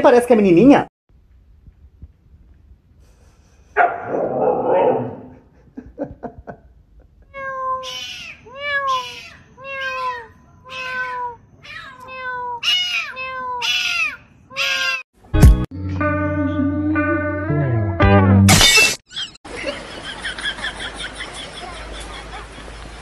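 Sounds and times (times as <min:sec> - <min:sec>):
cat meowing: 0:07.3 - 0:15.0.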